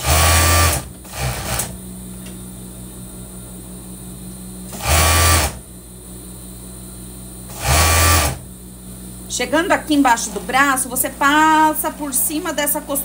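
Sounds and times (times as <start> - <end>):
machine stitching: 0.0 - 1.7, 4.7 - 5.6, 7.5 - 8.4
sewing machine motor humming: 0.0 - 1.7, 4.7 - 5.6, 7.5 - 8.4.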